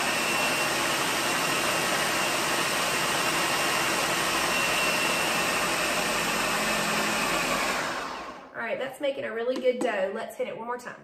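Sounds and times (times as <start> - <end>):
blender motor running: 0.0 - 8.6.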